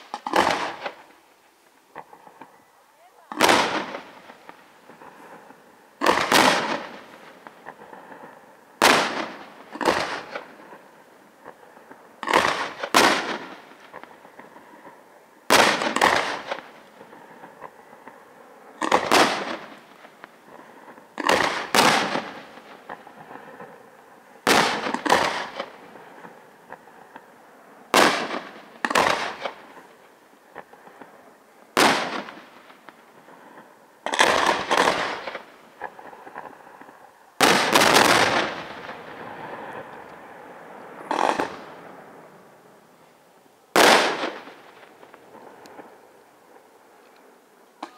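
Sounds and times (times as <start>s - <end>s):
firework shells bursting: 0.0s - 2.6s, 3.3s - 11.6s, 18.8s - 23.7s, 24.4s - 27.3s, 28.0s - 31.1s, 34.0s - 40.2s, 41.1s - 41.8s.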